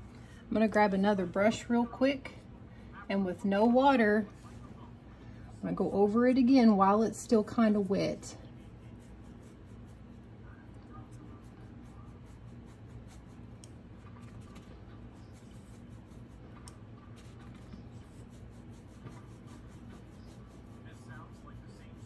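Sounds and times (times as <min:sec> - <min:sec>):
low steady hum: 0:00.0 - 0:22.0
brush bristles scratching canvas: 0:08.6 - 0:10.3, 0:11.0 - 0:22.0.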